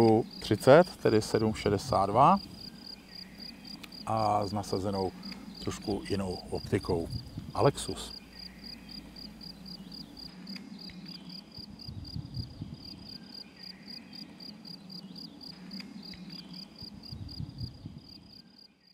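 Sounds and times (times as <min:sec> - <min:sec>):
insect chirping: 0:00.0 - 0:18.9
soft low bumps: 0:04.4 - 0:10.3.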